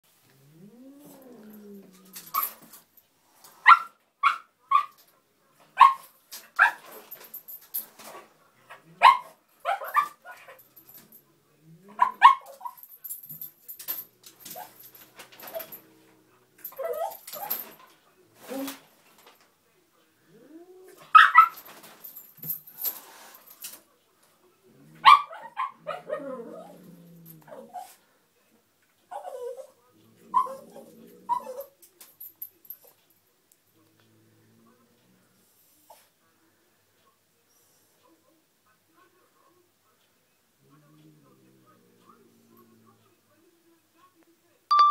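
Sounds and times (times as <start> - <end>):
small dog barking: 12.0 - 12.8
small dog yipping: 29.1 - 29.7
small dog whining: 29.1 - 31.7.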